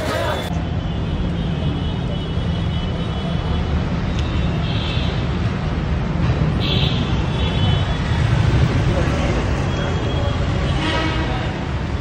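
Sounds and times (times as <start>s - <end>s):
traffic engines rumbling: 0.0s - 12.0s.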